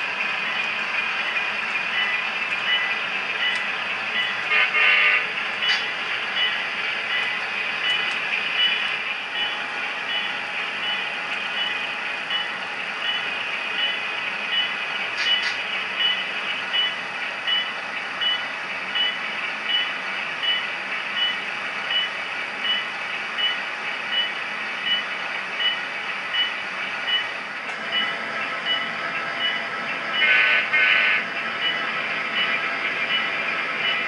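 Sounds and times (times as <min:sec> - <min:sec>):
model train cars running: 0:00.0 - 0:34.0
model train bell ringing: 0:01.2 - 0:18.4
model train horn blasts: 0:04.5 - 0:05.4, 0:30.2 - 0:31.2.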